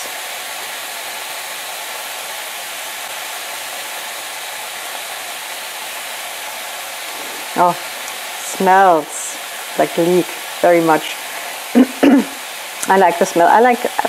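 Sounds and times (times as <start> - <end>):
leeks sizzling in hot oil: 0.0 - 14.0.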